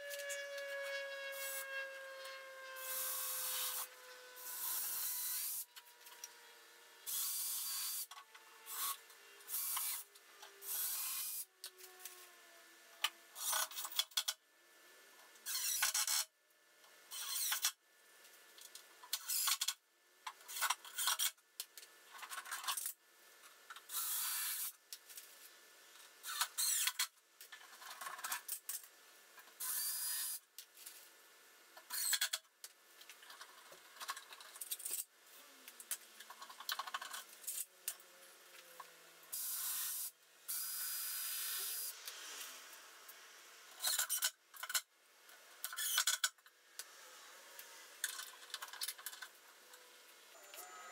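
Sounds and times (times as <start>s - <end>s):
drill driving screws into wood: 2.8s - 5.8s, 7.1s - 11.5s, 15.4s - 16.2s, 17.1s - 17.7s, 19.1s - 19.8s, 23.9s - 24.7s, 26.2s - 27.1s, 29.6s - 30.4s, 31.9s - 32.4s, 39.3s - 42.2s, 45.6s - 46.2s.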